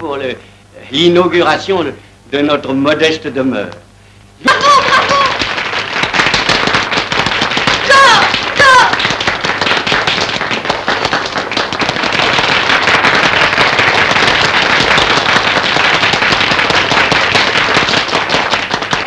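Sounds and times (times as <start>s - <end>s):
small crowd applauding: 4.4s - 19.0s.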